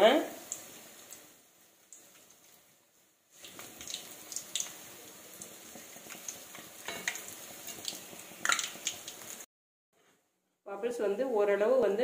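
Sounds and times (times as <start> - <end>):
food deep-frying in oil: 0.0 - 9.5
metal spoon clinking on pan: 6.8 - 7.2.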